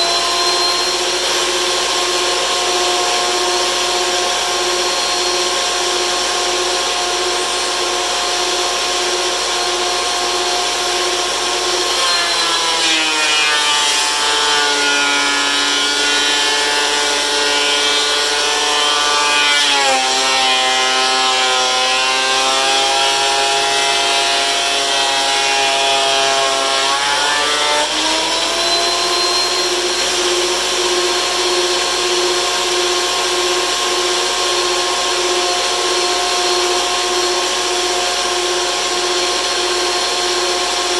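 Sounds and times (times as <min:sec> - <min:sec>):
thickness planer running: 0:00.0 - 0:40.9.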